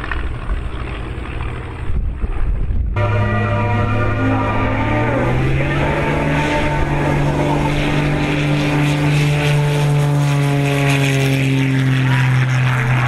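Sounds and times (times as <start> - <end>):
propeller plane droning past: 0.0 - 13.0.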